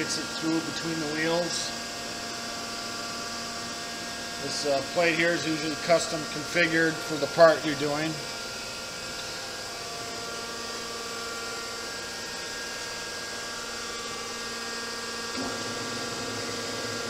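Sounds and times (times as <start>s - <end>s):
grinder electric hum: 0.0s - 17.0s
low drone of rotation: 15.3s - 17.0s.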